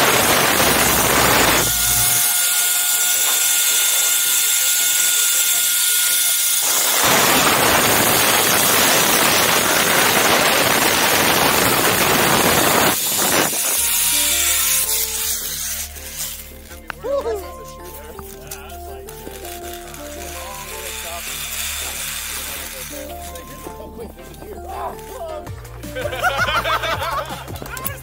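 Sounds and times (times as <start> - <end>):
zipline pulleys whirring on cable: 0.0 - 16.8, 18.3 - 23.9.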